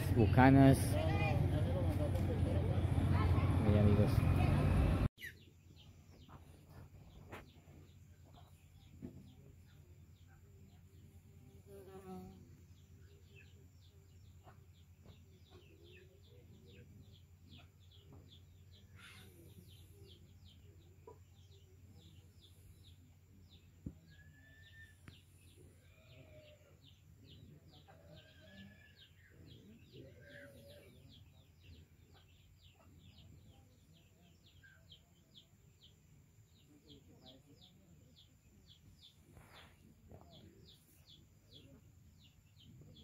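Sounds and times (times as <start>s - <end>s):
faint high chirping: 15.3s - 43.0s.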